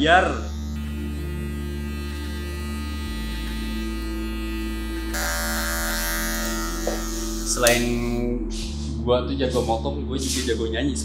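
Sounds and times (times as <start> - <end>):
electric hair clipper buzzing: 0.4 - 8.3.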